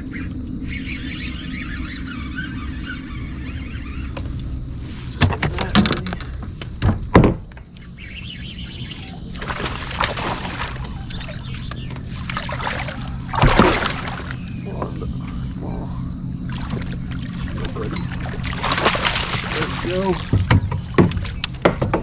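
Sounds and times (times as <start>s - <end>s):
steady low hum: 0.0s - 22.0s
fish splashing at water surface: 9.4s - 11.4s, 12.1s - 14.5s, 16.5s - 20.4s.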